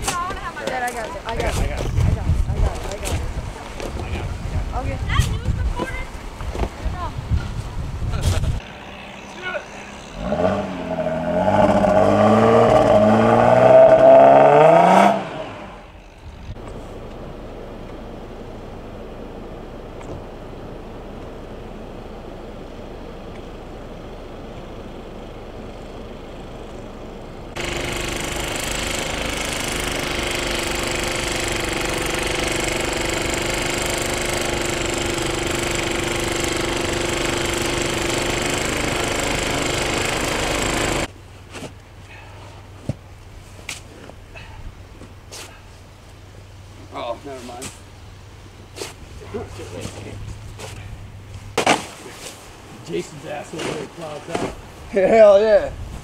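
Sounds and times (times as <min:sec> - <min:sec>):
snowblower engine humming: 0:08.6 - 0:13.5, 0:16.8 - 0:41.1
car engine revving hard: 0:08.6 - 0:16.0.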